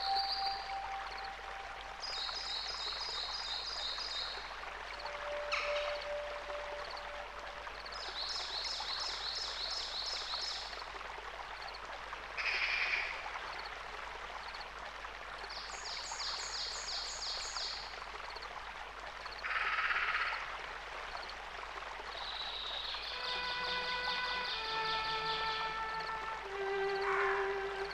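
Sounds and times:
songbird calls: 0.0s - 10.6s, 22.2s - 27.9s
low noisy burst: 5.0s - 7.9s.

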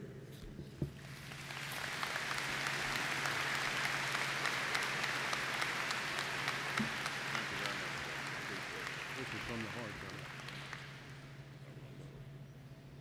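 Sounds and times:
audience applauding: 1.0s - 11.6s.

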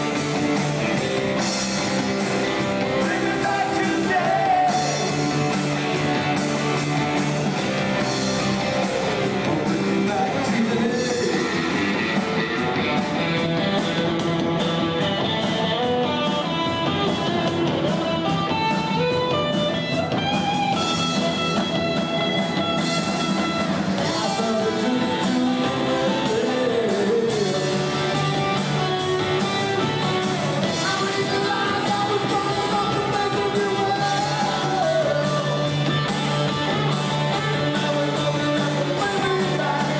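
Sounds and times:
drums with cymbal strikes: 0.0s - 39.9s
electric guitars: 0.0s - 39.9s
person singing: 2.3s - 6.3s, 8.8s - 12.4s, 23.4s - 39.9s.

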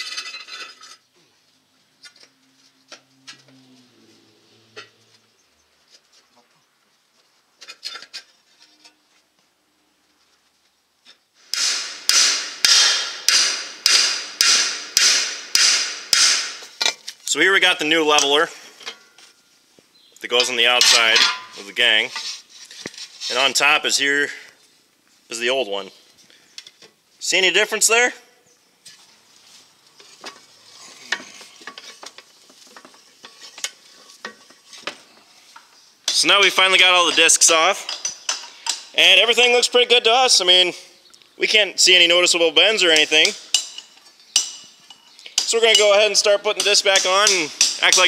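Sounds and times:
sharp metal knocks: 11.5s - 16.9s, 20.7s - 21.6s, 43.2s - 48.0s
hammer striking metal blades: 11.6s - 16.6s, 46.6s - 48.0s
metal blades clinking and scraping: 30.0s - 34.9s, 43.1s - 46.0s.

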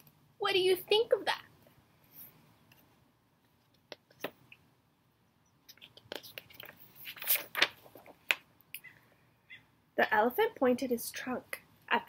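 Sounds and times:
paper page rustling: 5.7s - 8.4s.

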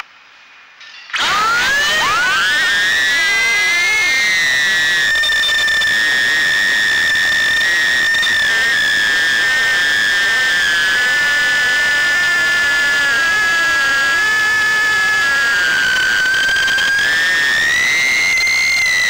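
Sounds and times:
quadcopter motors whining: 1.1s - 19.0s.

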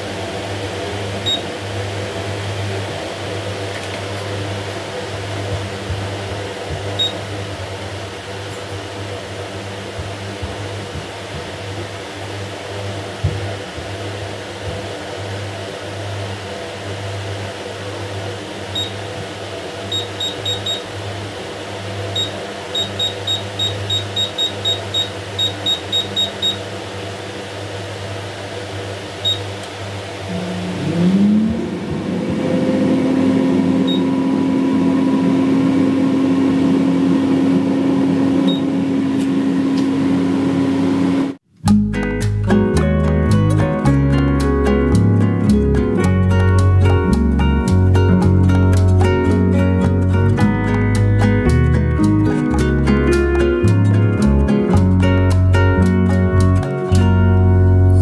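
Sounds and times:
oven motor whine and drone: 0.0s - 41.4s
touch-panel beeps: 1.2s - 1.5s, 18.8s - 19.0s, 19.9s - 20.8s, 22.2s - 26.6s, 29.2s - 29.5s, 33.8s - 34.1s
low hum: 29.2s - 58.0s.

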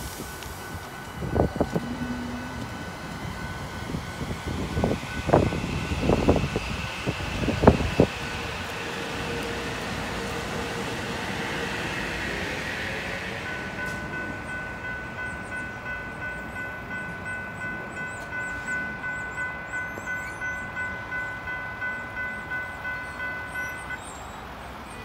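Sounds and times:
departing train: 0.0s - 25.0s
railroad crossing bell ringing: 0.0s - 25.0s.

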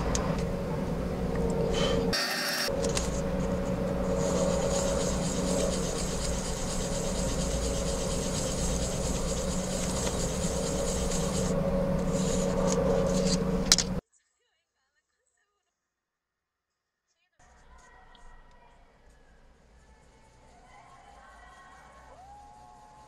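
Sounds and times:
low hum: 0.0s - 14.0s
sanding on sandpaper: 3.0s - 13.5s, 20.1s - 23.0s.

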